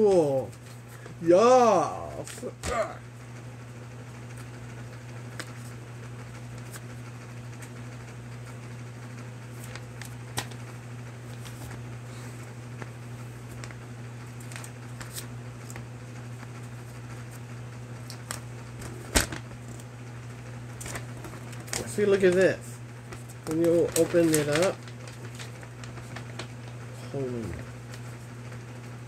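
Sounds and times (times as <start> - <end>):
low room hum: 0.0 - 29.0
paper rustling: 9.5 - 11.8, 12.8 - 15.8, 20.8 - 26.8.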